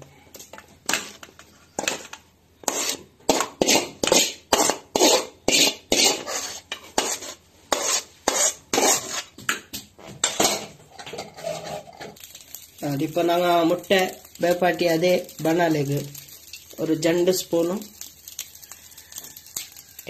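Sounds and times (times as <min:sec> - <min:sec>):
ladle scraping metal pan: 0:00.9 - 0:09.4, 0:10.2 - 0:12.2.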